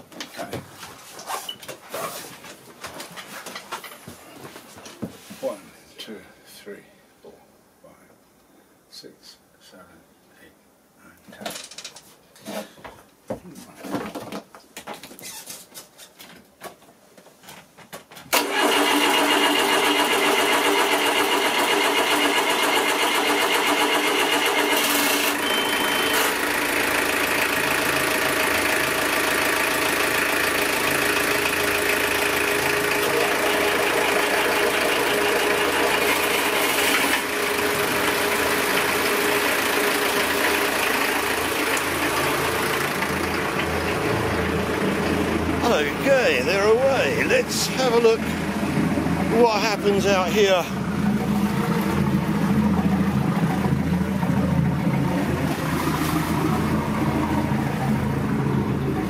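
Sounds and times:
diesel engines starting and idling: 0:18.3 - 0:59.0.

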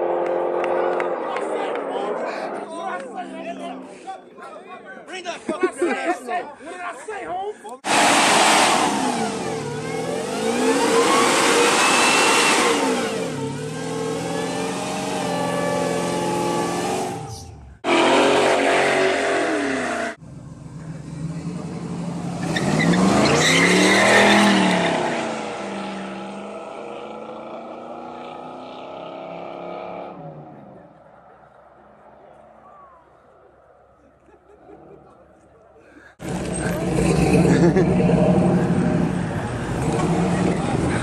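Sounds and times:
car engine revving: 0:00.0 - 0:03.0, 0:07.8 - 0:31.0, 0:36.2 - 0:41.0
cars accelerating hard: 0:00.0 - 0:03.5, 0:07.8 - 0:20.2, 0:20.8 - 0:31.6, 0:36.2 - 0:41.0.

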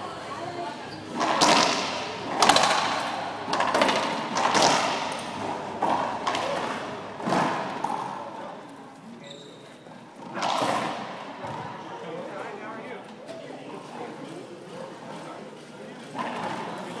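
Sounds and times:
racquetball hits echoing: 0:01.1 - 0:08.5, 0:10.3 - 0:11.8.

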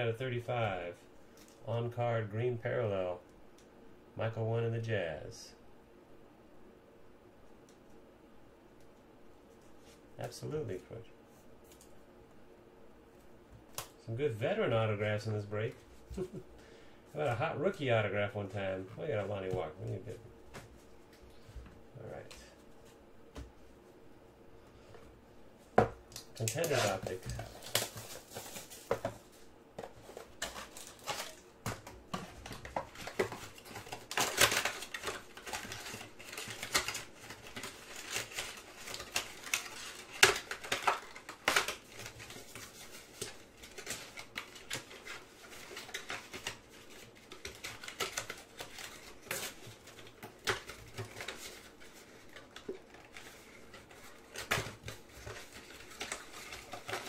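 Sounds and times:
rustling of card packs: 0:13.2 - 0:24.0, 0:24.7 - 0:57.0
foil wrappers crinkling: 0:26.2 - 0:57.0.

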